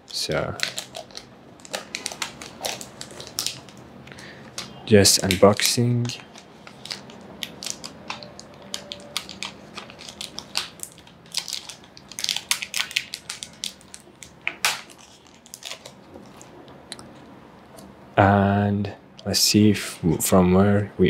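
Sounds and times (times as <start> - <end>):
plastic and paper wrapping crinkling: 0.1 - 16.6.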